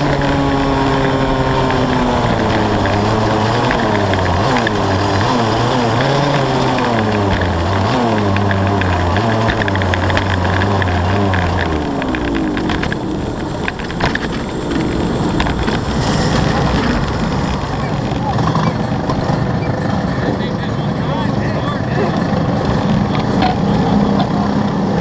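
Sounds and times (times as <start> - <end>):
clicks: 0.0 - 15.8
rushing noise: 0.0 - 21.9
kart engine revving: 0.0 - 25.0.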